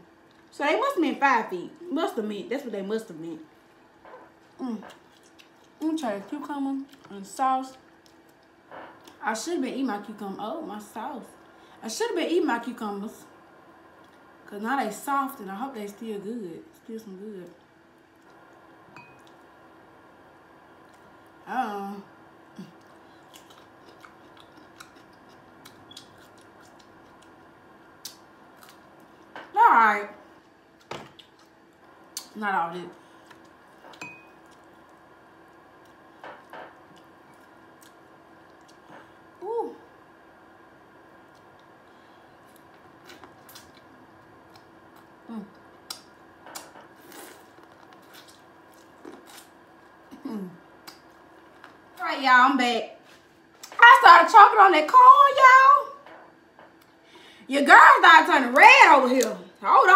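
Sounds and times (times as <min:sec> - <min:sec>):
faint steady hum: 0:00.0 - 0:59.9
person chewing cucumber: 0:04.4 - 0:05.8, 0:22.6 - 0:27.4, 0:28.0 - 0:29.3, 0:30.4 - 0:32.3, 0:36.8 - 0:38.9, 0:42.4 - 0:51.7
wet crunching while eating: 0:22.6 - 0:27.4, 0:42.4 - 0:50.2
person humming: 0:50.1 - 0:50.6.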